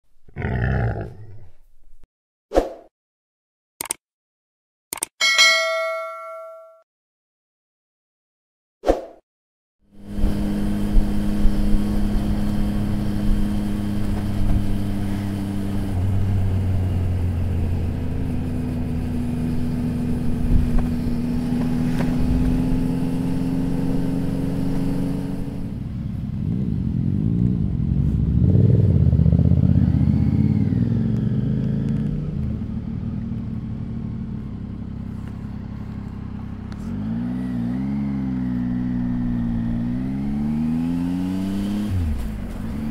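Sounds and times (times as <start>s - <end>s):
motorcycle engine running: 9.9s - 42.9s.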